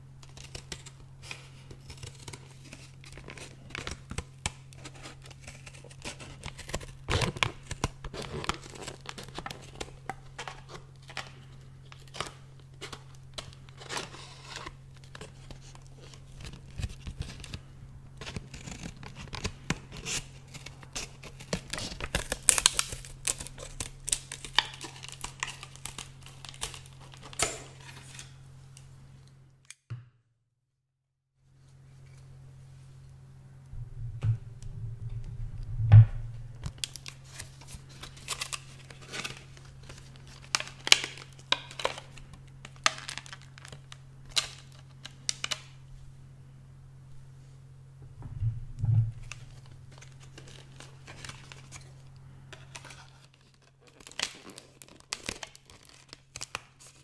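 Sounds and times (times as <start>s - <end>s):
plastic packaging crinkling: 0.2s - 28.4s, 36.5s - 45.8s, 49.2s - 57.0s
steady low hum: 31.4s - 42.8s, 43.6s - 53.2s.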